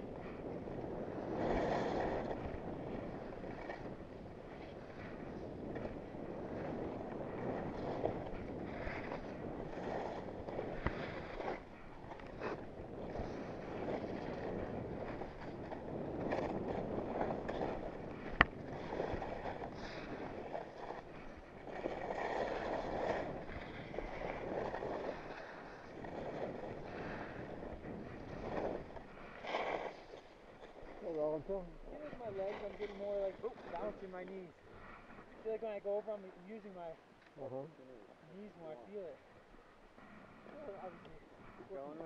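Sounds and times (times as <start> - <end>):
wind on microphone: 0.0 - 36.9
skis scraping over snow: 4.6 - 36.8.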